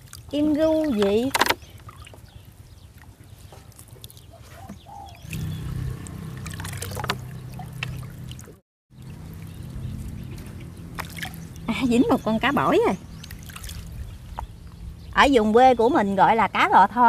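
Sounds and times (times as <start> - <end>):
small water splashes: 0.0 - 4.3, 5.2 - 14.5
water trickling off a net: 5.2 - 12.0, 13.2 - 14.2.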